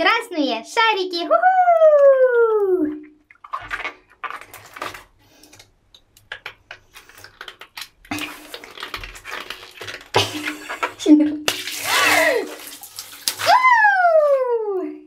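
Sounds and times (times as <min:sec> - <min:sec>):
water balloons squeaking and rubbing: 0:06.7 - 0:14.4.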